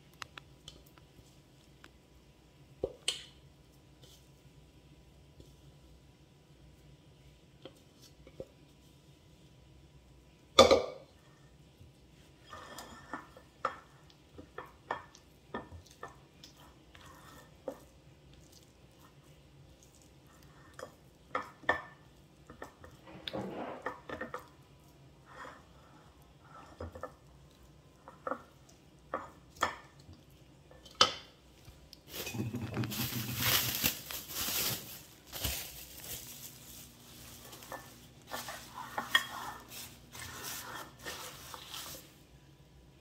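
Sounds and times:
plastic wrap crinkling: 32.0 - 42.2.

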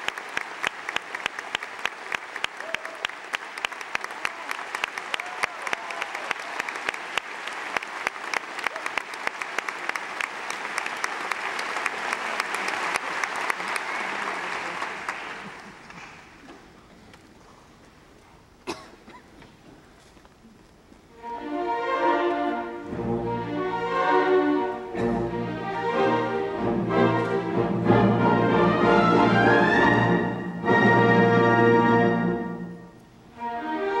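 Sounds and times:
audience applauding: 0.0 - 16.6.

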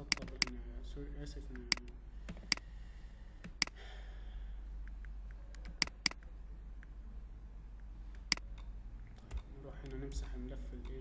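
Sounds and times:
computer mouse clicks: 0.0 - 0.6, 1.5 - 2.7, 3.4 - 3.8, 4.8 - 6.9, 8.1 - 11.0
low electrical hum: 0.0 - 11.0.

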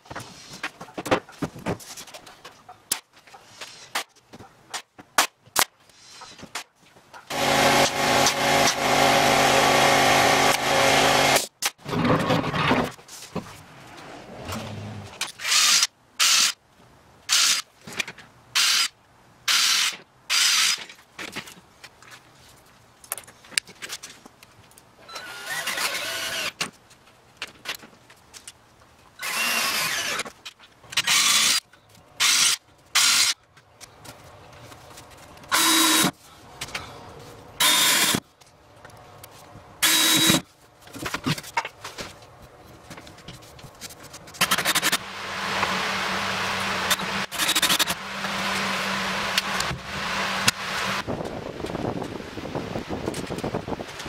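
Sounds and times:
cordless drill driving screws: 7.3 - 11.4, 25.1 - 26.6, 29.2 - 30.3, 31.0 - 31.6, 35.5 - 36.1, 37.6 - 38.2, 39.8 - 40.4, 46.6 - 49.7.

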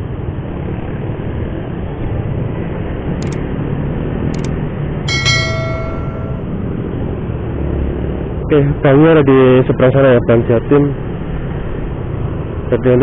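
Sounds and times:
bright bell chime: 5.1 - 6.4.

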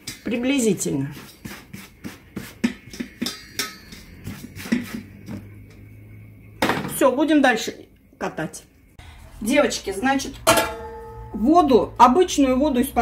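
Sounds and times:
metal baking pan taps and knocks: 2.6 - 4.1, 10.4 - 11.3
low steady hum: 7.9 - 13.0.

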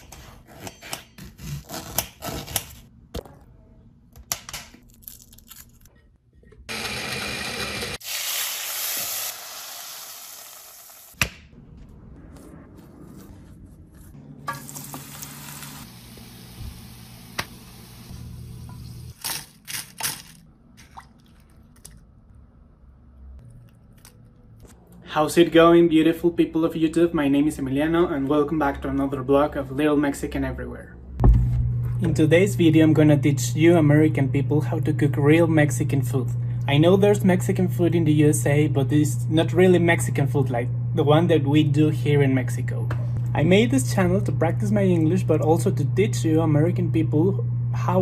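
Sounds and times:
low hum: 31.0 - 48.0.

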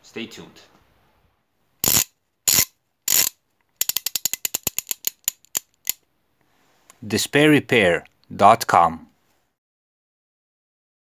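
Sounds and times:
fast run of sharp clicks: 1.8 - 6.0.

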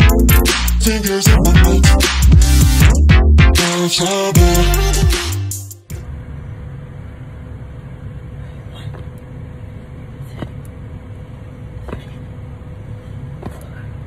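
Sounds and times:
background music: 0.0 - 6.0.

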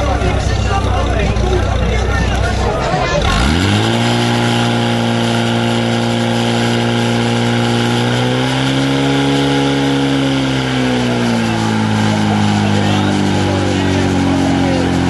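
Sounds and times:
pump engine at full throttle: 0.0 - 15.0.

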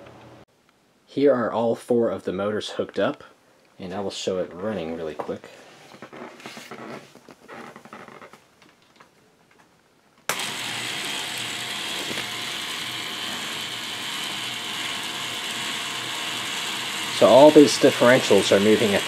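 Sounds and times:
toy electric motors running gears: 10.3 - 19.0.

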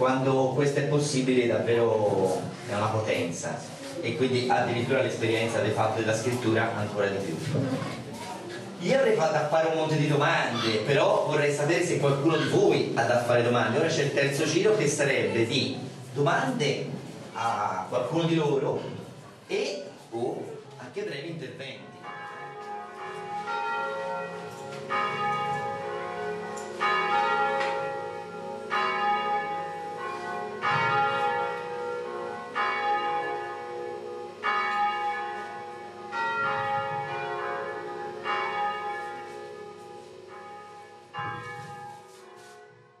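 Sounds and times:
bells ringing: 22.0 - 43.0.

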